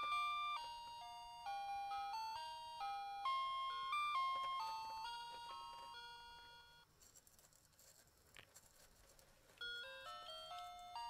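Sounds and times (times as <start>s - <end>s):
bell-like melody: 0.0s - 6.8s, 9.6s - 11.0s.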